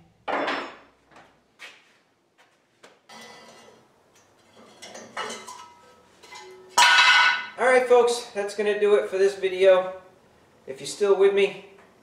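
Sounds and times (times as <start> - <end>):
objects knocking and scraping: 3.0 - 7.6.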